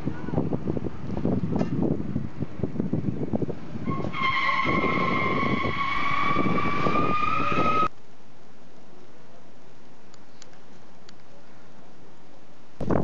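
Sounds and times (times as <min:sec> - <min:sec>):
motorcycle engines rumbling: 0:00.0 - 0:07.9
tire squealing: 0:03.5 - 0:07.9.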